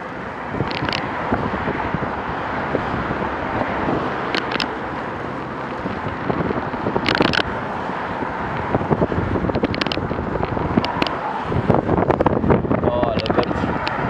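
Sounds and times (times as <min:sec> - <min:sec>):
road and traffic noise: 0:00.0 - 0:14.0
wind rush on microphone: 0:00.0 - 0:14.0
sharp clicks and rattles: 0:00.6 - 0:01.1, 0:04.2 - 0:07.6, 0:08.5 - 0:12.4, 0:13.0 - 0:14.0.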